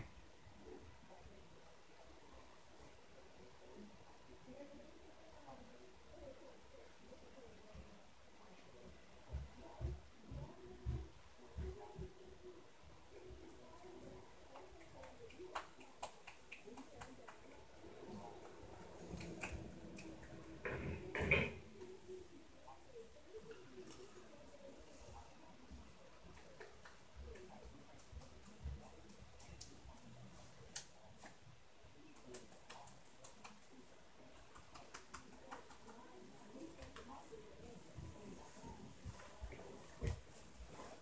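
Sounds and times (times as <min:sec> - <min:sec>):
faint muffled voices: 0:00.0 - 0:41.0
faint sharp clicks and ticks: 0:13.2 - 0:20.8, 0:23.3 - 0:41.0.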